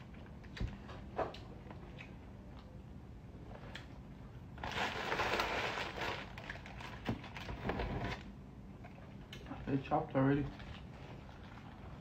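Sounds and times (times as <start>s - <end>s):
plastic bag crinkling: 4.6s - 8.2s.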